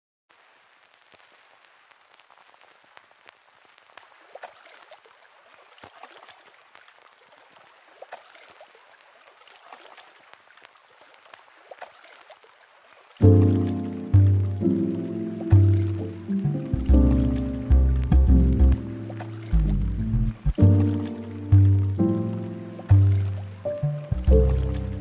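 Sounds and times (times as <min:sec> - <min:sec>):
crackle and pops over hiss: 0:00.3 - 0:25.0
loud music with deep bass: 0:16.6 - 0:19.0.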